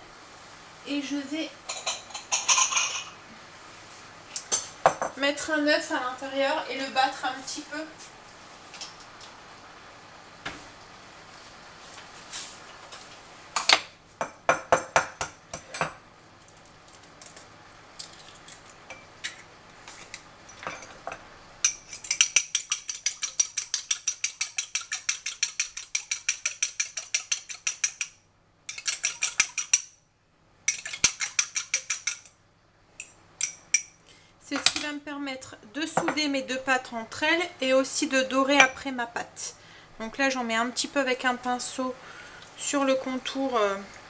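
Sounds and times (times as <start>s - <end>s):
fork clinking against bowl: 21.7s - 28.1s, 28.7s - 29.9s.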